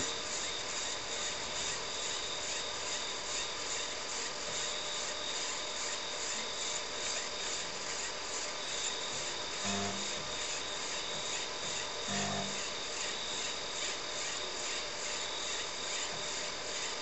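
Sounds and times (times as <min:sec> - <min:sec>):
floppy disk drive whirring: 0:08.6 - 0:17.0.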